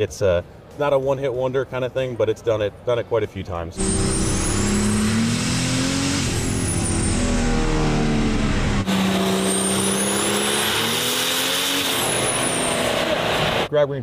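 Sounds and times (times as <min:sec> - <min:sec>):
diesel truck engine revving: 0:03.8 - 0:13.7
high turbo whistle: 0:03.8 - 0:13.7.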